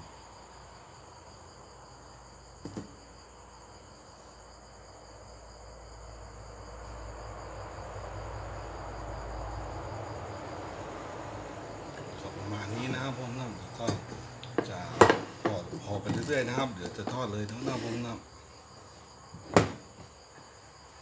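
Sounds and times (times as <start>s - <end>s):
crickets trilling: 0.0s - 21.0s
soft knocks: 13.8s - 16.4s.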